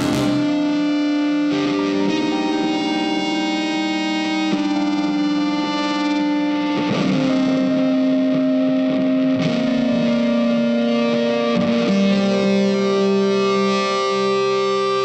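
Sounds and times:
slow instrumental background music: 0.0 - 4.3.

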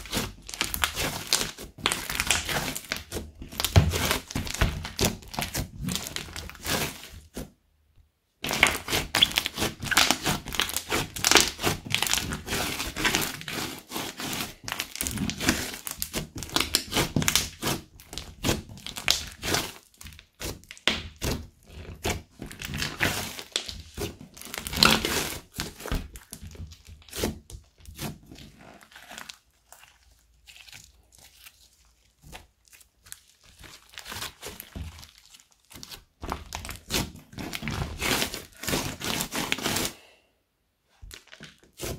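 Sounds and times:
slime crackling and popping: 0.0 - 7.4, 8.4 - 39.9, 41.0 - 41.9.

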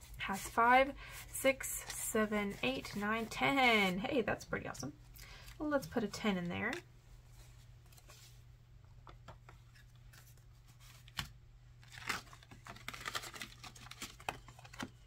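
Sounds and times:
envelope crinkling: 9.7 - 15.0
banknotes rustling: 9.8 - 15.0.

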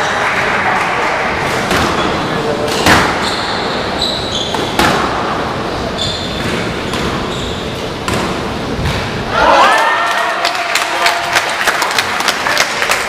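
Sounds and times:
squash ball knocks: 1.6 - 3.2
shoes squeaking on wooden floor: 2.8 - 4.9, 5.9 - 7.9.

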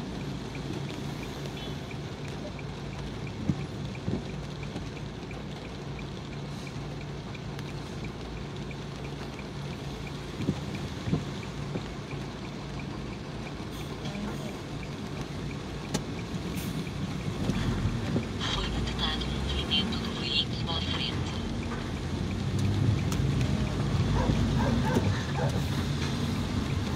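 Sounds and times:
light ticking: 0.0 - 26.9
rain and road noise: 0.0 - 26.9
windscreen wipers knocking: 3.2 - 5.4, 10.3 - 12.1.

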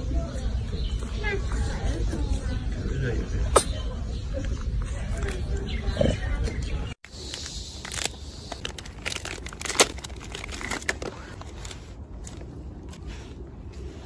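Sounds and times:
plastic wrapper crinkling: 7.2 - 12.4.

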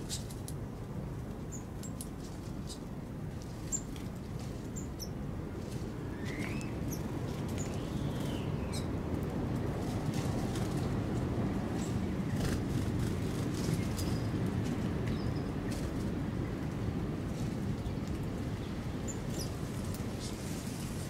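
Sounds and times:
small birds chirping: 1.5 - 2.9, 3.6 - 8.9, 15.0 - 15.8, 17.8 - 20.5
rising and falling bird calls: 6.1 - 7.0.

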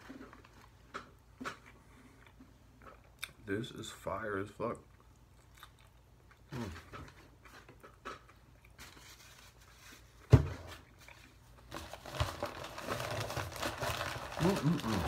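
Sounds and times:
crinkling and rustling: 0.0 - 3.0, 6.6 - 15.0
quiet chewing: 0.1 - 3.4, 4.7 - 8.9.

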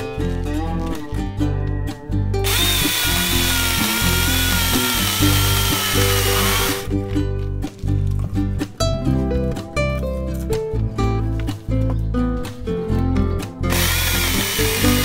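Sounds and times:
plucked guitar music: 0.0 - 15.0
electric chainsaw cutting log: 2.4 - 6.9, 13.7 - 15.0.

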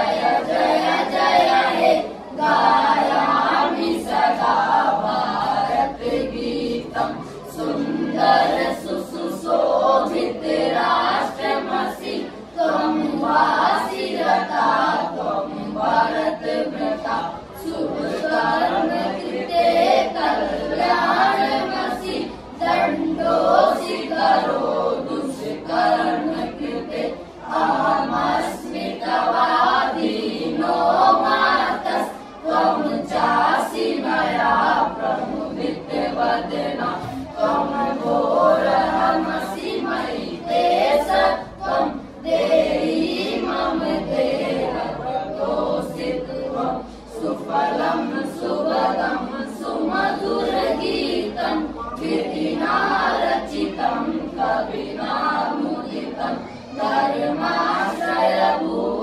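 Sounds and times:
boys singing unaccompanied: 0.0 - 59.0.

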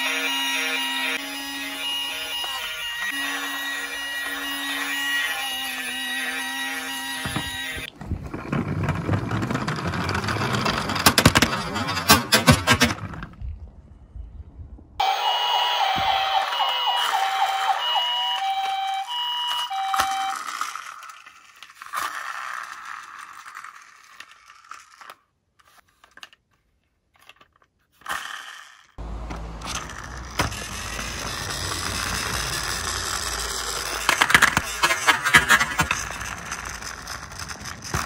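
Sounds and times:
toy electronic siren beeping: 0.0 - 7.9, 15.0 - 21.4, 29.9 - 37.0
toy car wheels rolling: 0.0 - 13.4, 15.8 - 38.0.

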